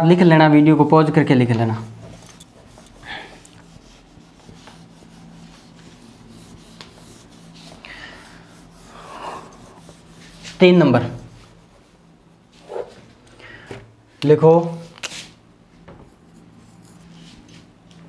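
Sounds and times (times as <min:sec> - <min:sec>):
low steady hum: 0:00.0 - 0:18.0
duster rubbing on whiteboard: 0:01.5 - 0:13.2.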